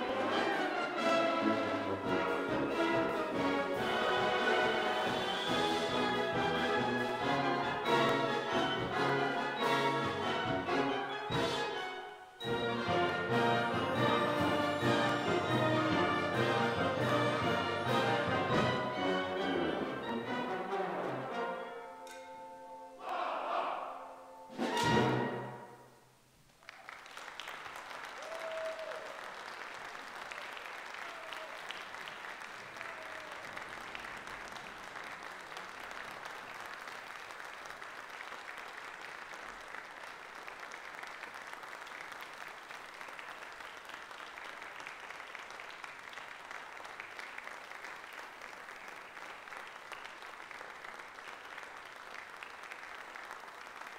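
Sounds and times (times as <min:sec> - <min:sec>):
audience applause: 0:00.0 - 0:11.1, 0:12.6 - 0:20.2, 0:26.5 - 0:53.9.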